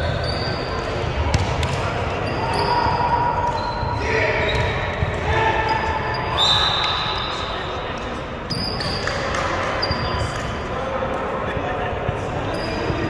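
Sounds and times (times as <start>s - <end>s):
shoes squeaking on court floor: 0.0s - 7.8s, 8.4s - 10.6s, 12.1s - 13.0s
volleyball slaps: 1.2s - 2.0s.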